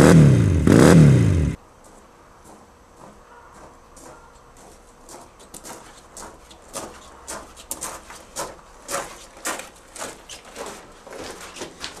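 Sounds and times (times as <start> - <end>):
footsteps crunching on gravel: 1.8 - 12.0.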